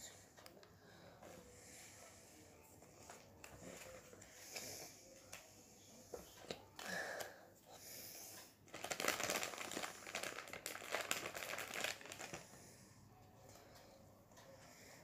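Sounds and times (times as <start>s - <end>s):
plastic wrapper crinkling: 8.7s - 12.6s.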